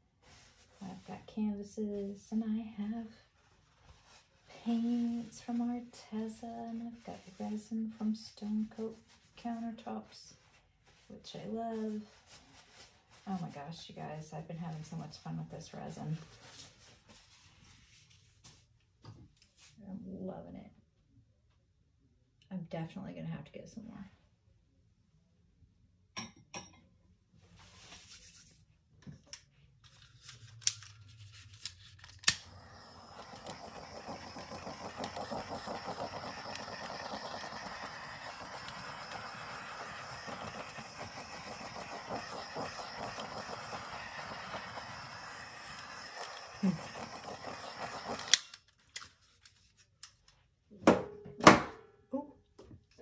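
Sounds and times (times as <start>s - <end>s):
heat gun fan blowing: 32.0s - 48.5s
handheld torch hissing: 32.2s - 48.5s.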